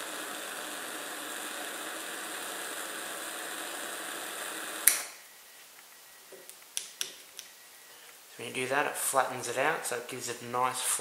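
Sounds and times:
jet lighter hissing: 0.0s - 5.2s.

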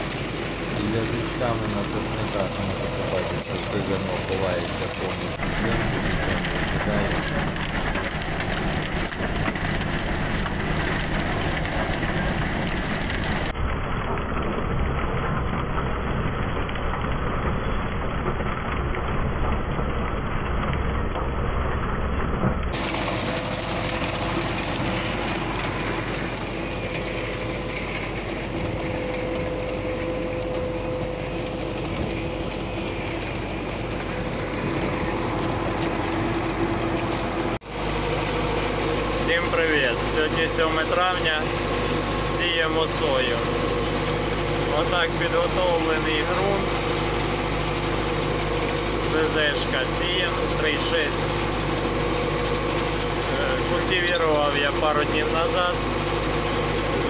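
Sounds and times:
seed drill rattling: 0.0s - 5.4s, 22.8s - 51.0s
tractor diesel engine under load: 0.0s - 13.5s, 22.7s - 57.0s.

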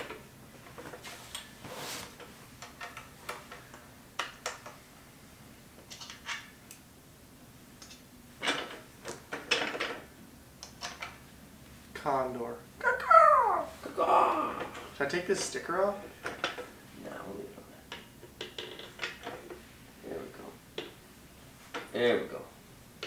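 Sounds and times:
rustling: 0.0s - 3.7s.

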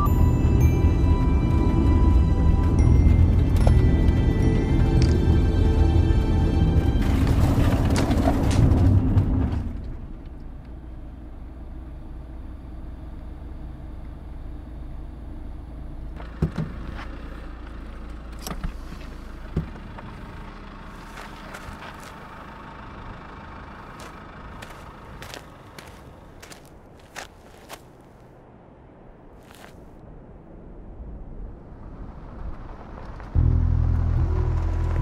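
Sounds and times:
low car-like hum: 0.0s - 35.0s
loud low sound: 33.4s - 35.0s.

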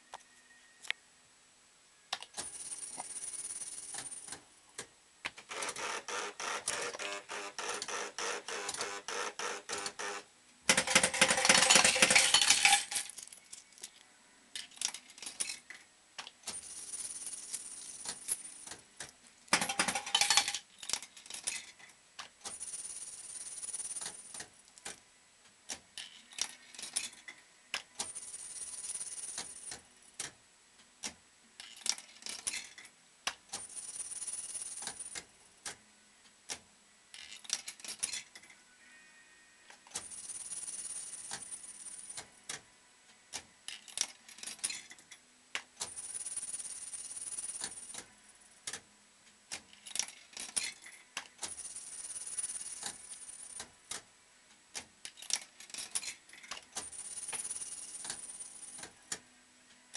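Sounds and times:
coins clattering: 2.3s - 4.4s, 5.5s - 14.0s, 14.6s - 15.8s, 16.4s - 18.8s, 19.5s - 24.4s, 26.0s - 29.8s, 31.6s - 32.9s, 33.5s - 35.2s, 37.1s - 38.6s, 39.9s - 42.2s, 43.7s - 45.2s, 45.8s - 48.0s, 49.6s - 53.6s, 55.1s - 58.9s
mechanical clicks and clunks: 3.9s - 13.0s.

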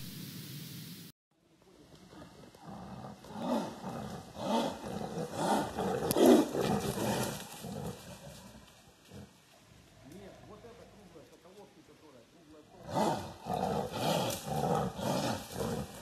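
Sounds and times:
tiger roaring: 2.1s - 11.1s, 12.7s - 16.0s.

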